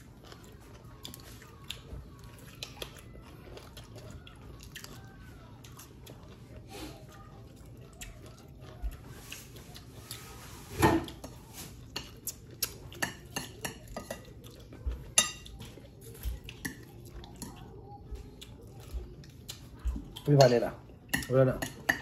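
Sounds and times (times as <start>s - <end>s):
metal spoon clinking on plates: 12.9s - 14.4s, 15.1s - 15.8s, 20.4s - 22.0s.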